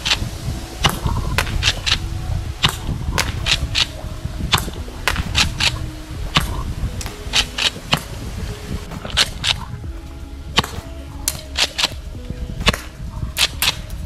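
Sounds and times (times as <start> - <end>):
airsoft shotgun shots: 4.5 - 5.8.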